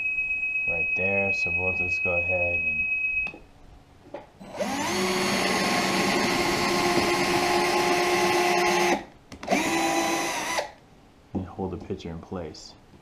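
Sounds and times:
drill motor whine: 0:04.4 - 0:10.8.

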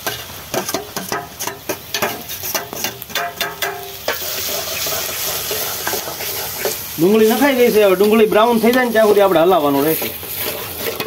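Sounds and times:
onions sizzling in oil: 0:00.0 - 0:11.0
spoon scraping steel plate: 0:09.9 - 0:11.0.

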